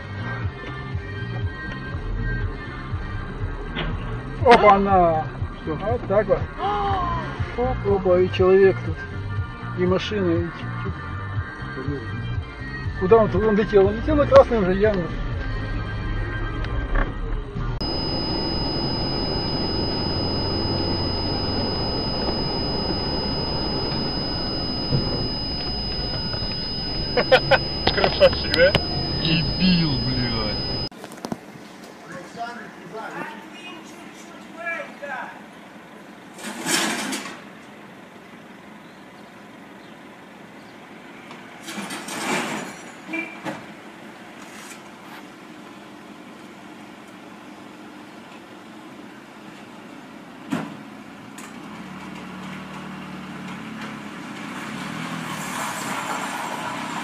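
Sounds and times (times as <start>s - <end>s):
thin high whine: 17.8s - 30.9s
vehicle road and engine noise: 35.4s - 57.0s.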